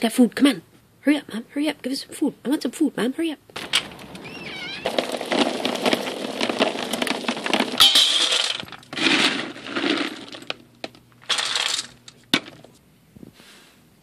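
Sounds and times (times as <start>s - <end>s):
dry kibble pouring into plastic bin: 3.6s - 10.6s, 11.2s - 12.0s.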